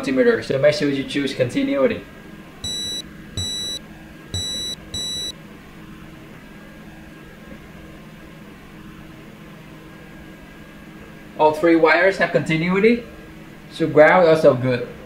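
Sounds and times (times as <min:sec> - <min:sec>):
multimeter continuity beeps: 0:02.6 - 0:03.8, 0:04.4 - 0:05.3.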